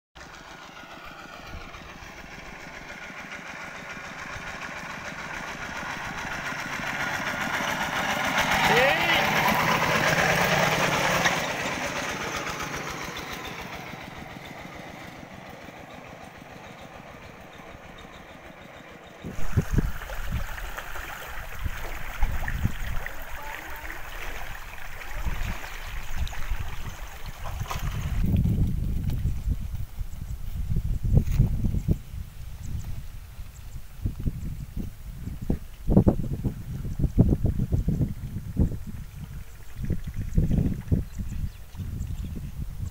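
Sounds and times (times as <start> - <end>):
diesel tractor engine running: 0.2 - 35.6
wind buffeting microphone: 0.8 - 15.3, 19.2 - 42.9
hiss of moving air: 19.3 - 23.4.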